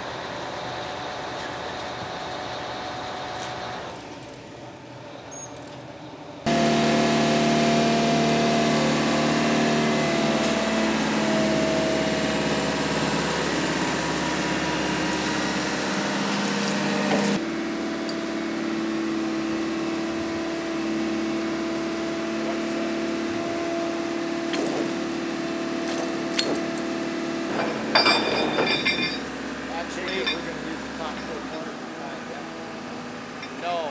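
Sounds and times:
diesel engine running: 0:00.0 - 0:05.0, 0:06.4 - 0:33.9
sharp metallic clinks: 0:27.6 - 0:31.7.

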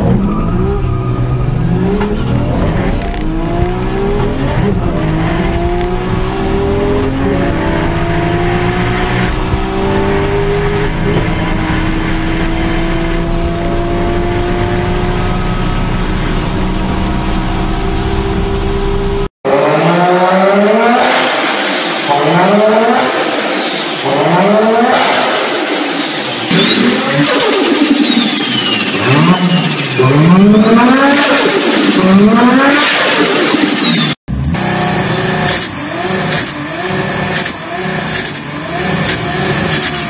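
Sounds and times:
engine revving: 0:00.0 - 0:40.0
sports car engine accelerating: 0:00.0 - 0:40.0.

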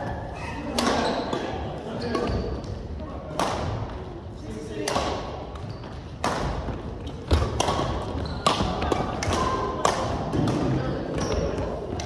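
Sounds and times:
badminton racket hitting shuttlecock: 0:07.3 - 0:10.7.

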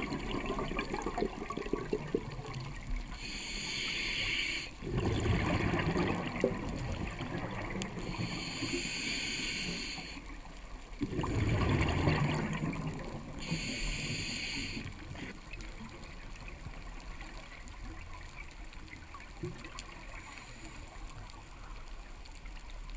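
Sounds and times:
exhaled bubbles: 0:00.0 - 0:03.3, 0:04.8 - 0:08.8, 0:11.0 - 0:17.3
regulator hiss on inhale: 0:02.9 - 0:04.8, 0:07.9 - 0:10.4, 0:13.4 - 0:15.4, 0:20.0 - 0:21.7.

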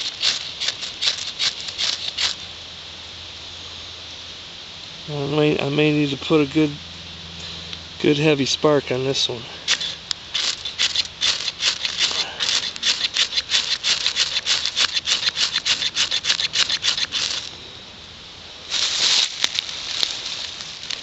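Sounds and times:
knife scraping fire steel: 0:00.0 - 0:02.4, 0:09.6 - 0:17.5.

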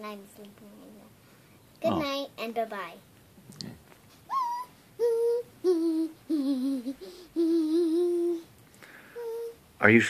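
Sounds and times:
girl humming in a high voice: 0:04.3 - 0:08.5, 0:09.2 - 0:09.6.

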